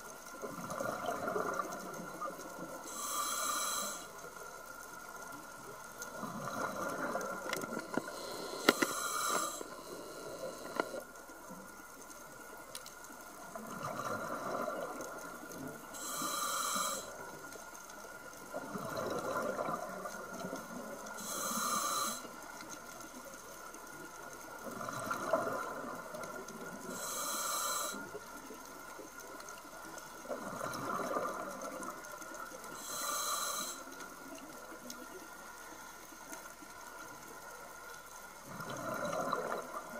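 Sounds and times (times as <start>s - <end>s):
regulator inhale hiss: 2.8s - 4.4s, 7.7s - 11.0s, 15.9s - 17.4s, 21.1s - 22.5s, 26.8s - 28.3s, 32.6s - 34.4s
exhale bubbling underwater: 38.4s - 39.9s.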